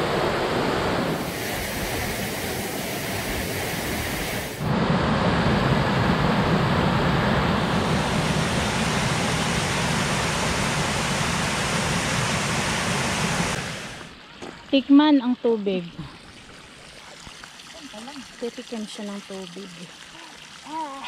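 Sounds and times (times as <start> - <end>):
waterfall rushing over rocks: 7.6 - 14.2.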